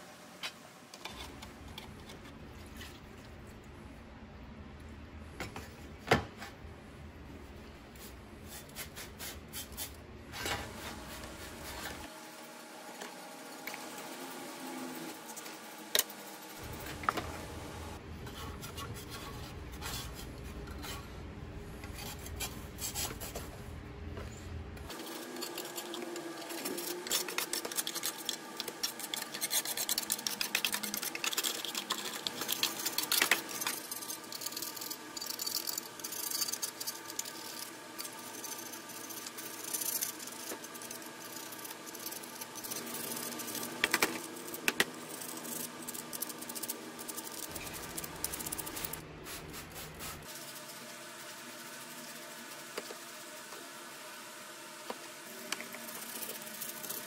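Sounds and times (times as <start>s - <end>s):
scraper rasping paint off metal: 24.9s - 43.7s.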